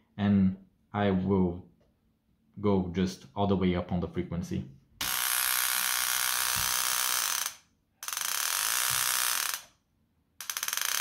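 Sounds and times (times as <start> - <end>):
solenoid graver buzzing: 5.0 - 9.7.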